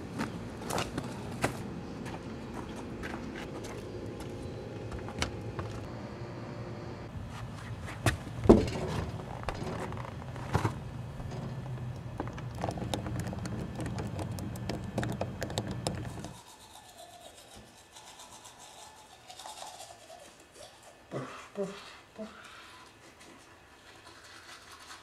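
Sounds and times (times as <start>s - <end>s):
steady low hum: 0.0s - 16.5s
toothbrush scrubbing teeth: 12.6s - 25.0s.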